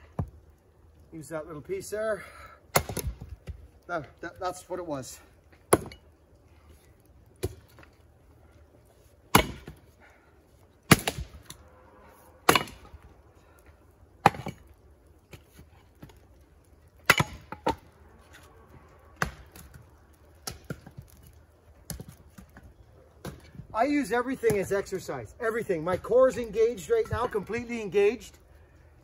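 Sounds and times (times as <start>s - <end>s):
axe chopping wood: 2.7s - 3.6s, 5.7s - 6.0s, 9.3s - 9.8s, 10.9s - 11.5s, 12.4s - 13.0s, 14.2s - 14.6s, 17.0s - 17.8s, 19.2s - 19.8s.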